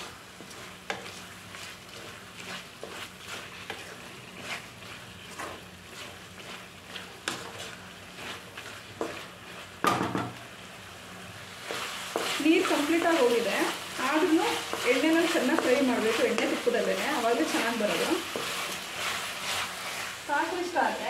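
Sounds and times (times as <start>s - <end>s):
spatula scraping a pan: 0.0s - 9.9s, 11.6s - 21.0s
food frying: 0.0s - 21.0s.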